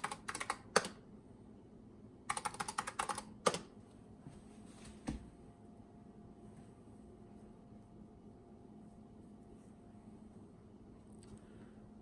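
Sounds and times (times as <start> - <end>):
computer keyboard typing: 0.0 - 1.0, 2.2 - 3.8.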